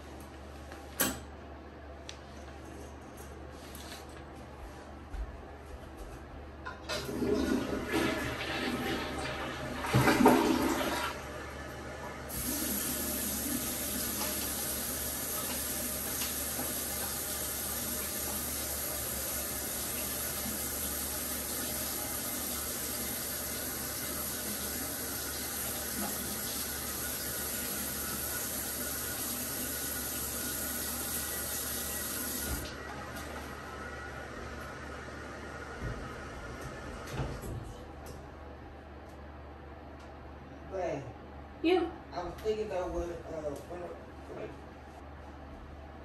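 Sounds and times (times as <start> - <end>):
toilet flushing: 6.7 - 37.8
toilet tank refilling hiss: 6.9 - 37.1.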